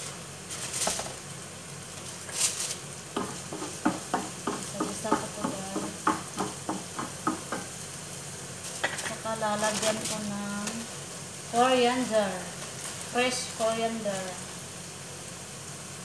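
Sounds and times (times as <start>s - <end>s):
onions sizzling in oil: 0.0s - 16.0s
spatula knocking and scraping pan: 3.1s - 7.8s, 8.8s - 9.2s.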